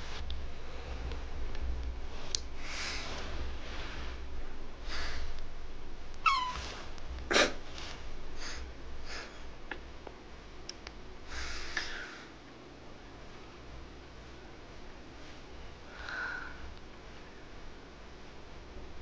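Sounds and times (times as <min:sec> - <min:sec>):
kitten sniffing and breathing: 0:02.1 - 0:04.2
high squeak: 0:06.2 - 0:06.8.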